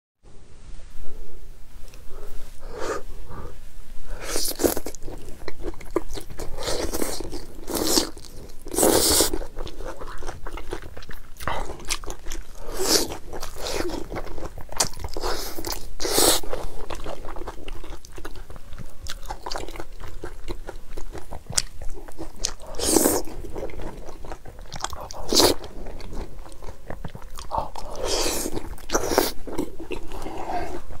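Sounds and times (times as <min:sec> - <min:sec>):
chewing: 0:04.2 - 0:31.0.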